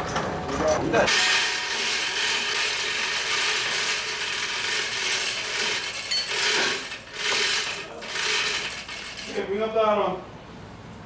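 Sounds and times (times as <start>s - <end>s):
ratcheting mechanical rasp: 1.1s - 9.5s.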